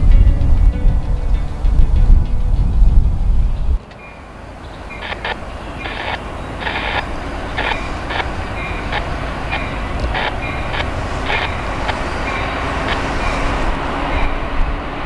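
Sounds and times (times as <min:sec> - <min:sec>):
diesel freight train rumble: 0:00.0 - 0:15.0
crossing bell dinging: 0:03.8 - 0:14.6.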